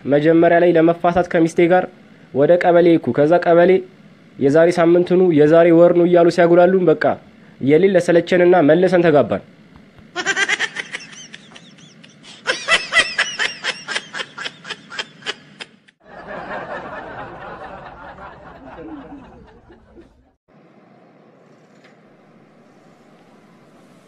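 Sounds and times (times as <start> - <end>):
laugh track cackling: 10.1 - 20.4.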